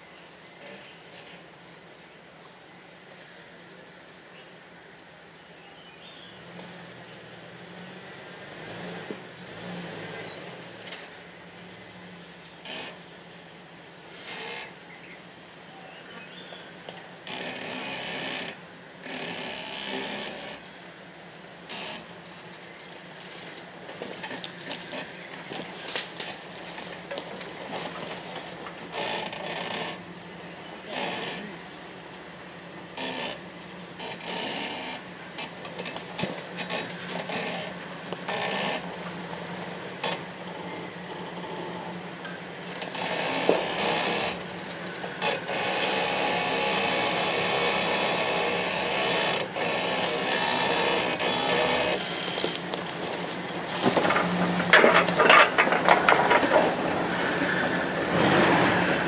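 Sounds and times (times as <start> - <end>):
tyres crackling over dirt: 16.0 - 32.4, 33.3 - 59.0
car engine running under load: 19.9 - 59.0.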